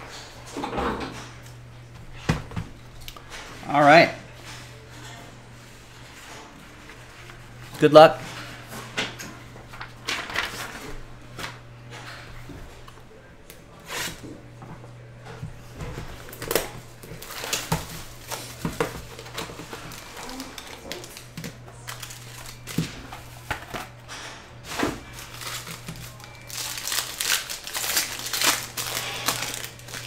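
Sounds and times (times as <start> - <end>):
plastic wrap crinkling and tearing: 16.3 - 23.8, 25.0 - 30.0.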